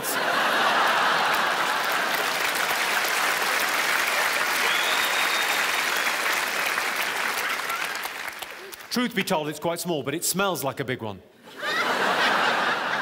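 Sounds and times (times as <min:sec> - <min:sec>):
audience laughing and applauding: 0:00.0 - 0:08.9, 0:11.5 - 0:13.0.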